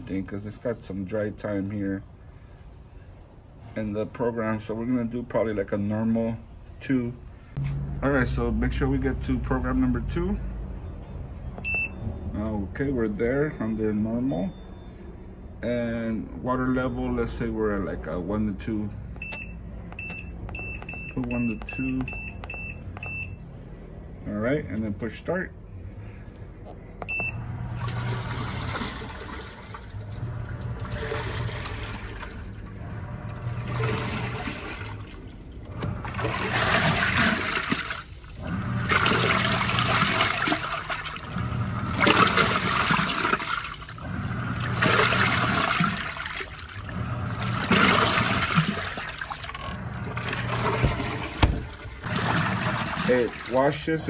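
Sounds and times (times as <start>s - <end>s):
washing machine beep: 11.0s - 12.3s, 13.5s - 15.3s, 19.2s - 23.5s, 27.0s - 34.9s, 38.4s - 53.5s
washing machine motor humming: 27.0s - 54.0s
water sloshing in tub: 27.1s - 54.0s.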